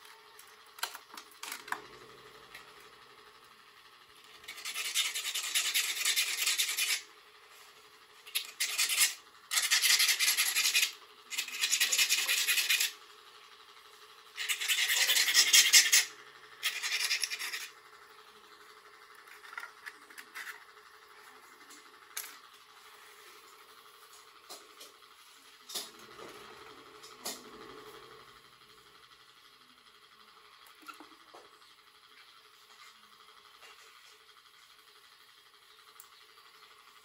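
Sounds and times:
file rasping on metal part: 4.4 - 7.1, 8.3 - 13.0, 14.4 - 17.7.

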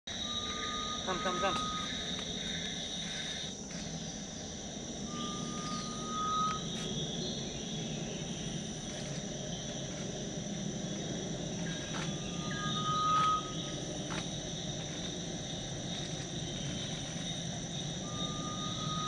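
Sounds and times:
bird rising whistle: 0.1 - 2.0, 5.0 - 7.5, 12.2 - 14.3, 16.8 - 19.0
forest insects droning: 0.1 - 19.0.

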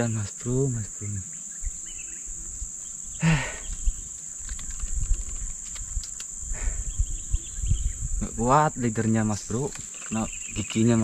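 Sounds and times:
forest insects droning: 0.0 - 11.0
faint handling clicks: 3.6 - 6.4.

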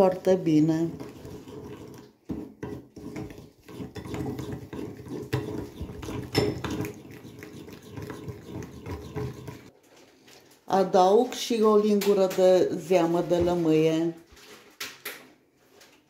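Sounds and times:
spoon scraping ceramic bowl: 0.0 - 9.7
spoon clinking on bowl: 6.1 - 6.9.

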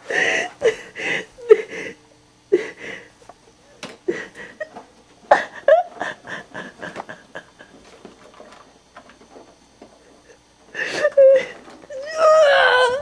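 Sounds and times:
person laughing: 4.1 - 8.1.

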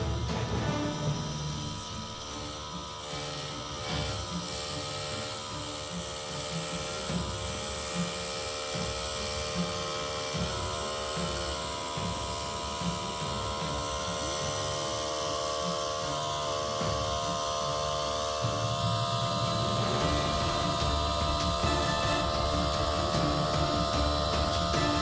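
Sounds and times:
locomotive mechanical drone: 0.0 - 25.0
low rumble of snow cutting: 0.0 - 25.0.

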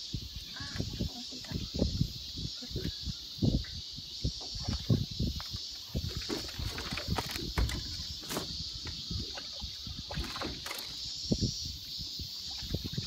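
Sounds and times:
water lapping against boat hull: 3.6 - 11.4, 12.3 - 13.0.

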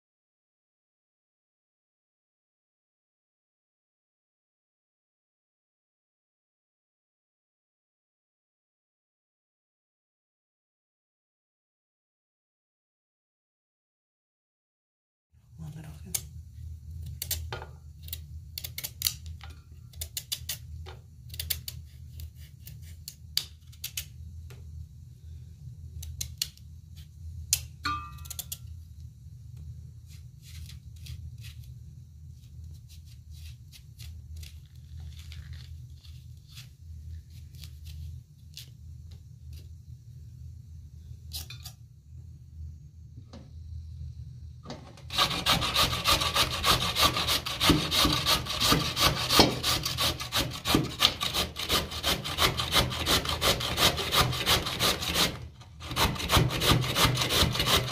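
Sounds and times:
steady low hum: 15.4 - 57.9
knife cutting pumpkin: 21.3 - 24.1, 45.1 - 57.9
brief metallic ring: 27.8 - 28.5.

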